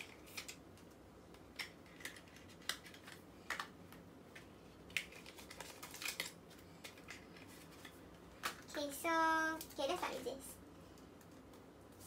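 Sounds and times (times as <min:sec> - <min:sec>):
paper and plastic rustling: 0:04.9 - 0:08.9.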